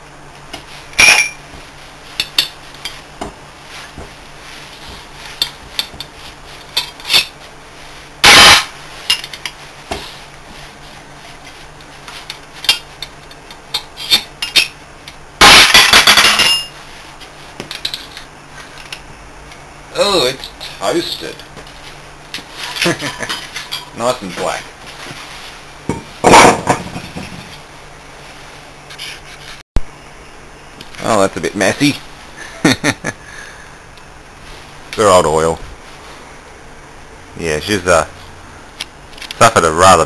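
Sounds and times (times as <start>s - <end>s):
metal tools clinking on steel: 0.9s - 1.4s, 15.6s - 16.8s.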